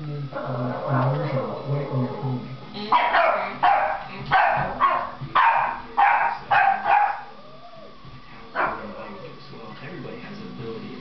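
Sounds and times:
puppy barking: 0:02.9 - 0:07.4, 0:08.6 - 0:08.9.

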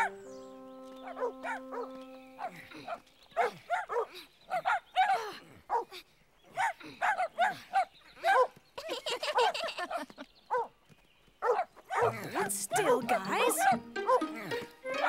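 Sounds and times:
dogs barking: 0:01.0 - 0:05.9, 0:06.5 - 0:08.6, 0:09.8 - 0:10.7, 0:11.4 - 0:15.0.

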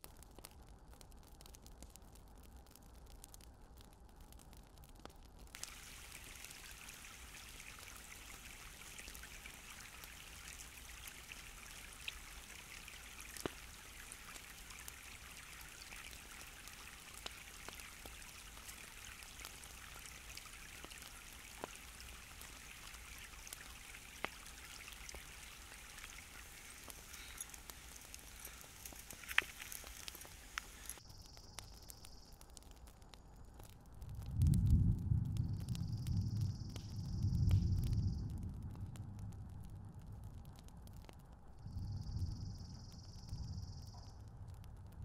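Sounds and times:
small ticks: 0:00.0 - 0:45.0
stream babbling over rocks: 0:05.6 - 0:31.0.

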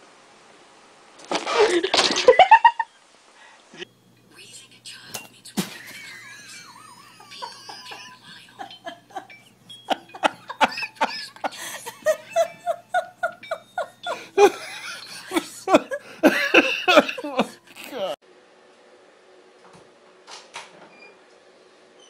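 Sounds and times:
people laughing: 0:01.5 - 0:02.8, 0:05.8 - 0:18.2.

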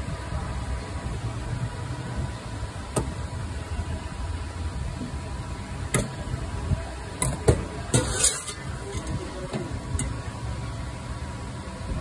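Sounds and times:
low traffic rumble: 0:00.0 - 0:12.0
utensils clattering: 0:07.9 - 0:09.2.

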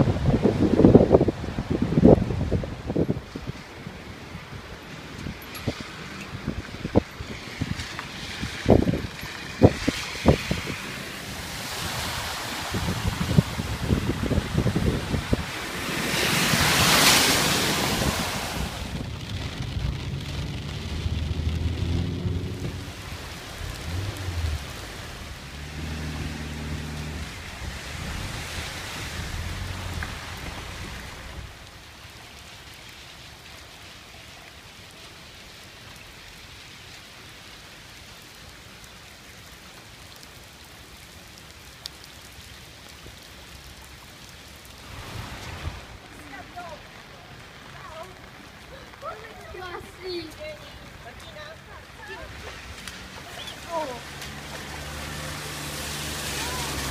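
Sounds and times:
car splashing through floodwater: 0:00.0 - 0:56.9
rain falling on flooded street: 0:00.0 - 0:56.9
low rumble: 0:18.7 - 0:31.8.

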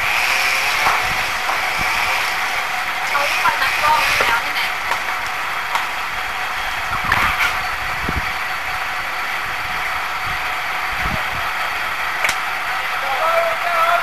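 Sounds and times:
engine running: 0:00.0 - 0:14.0.

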